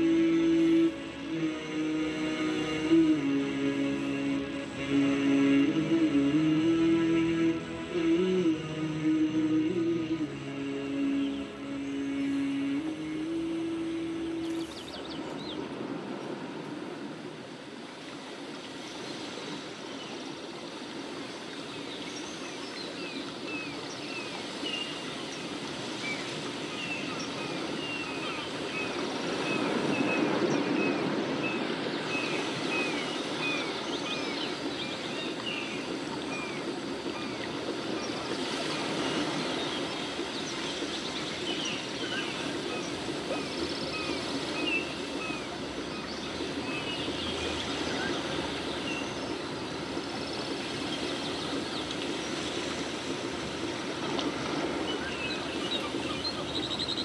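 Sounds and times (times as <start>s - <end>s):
outdoor background noise: 0.0s - 57.0s.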